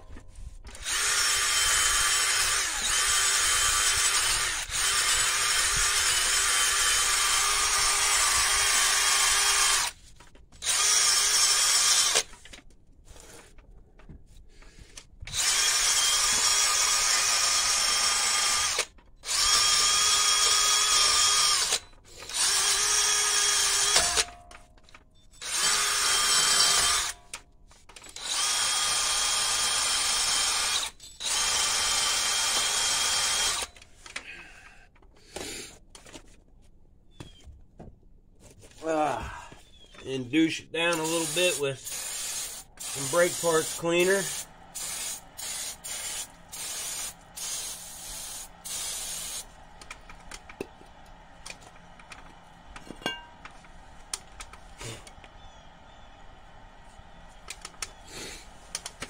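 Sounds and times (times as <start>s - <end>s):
drill attachment scrubbing metal: 0.7s - 10.0s, 15.3s - 24.3s, 40.5s - 50.7s
drill motor whine: 0.7s - 10.0s, 10.6s - 12.3s, 15.3s - 24.3s.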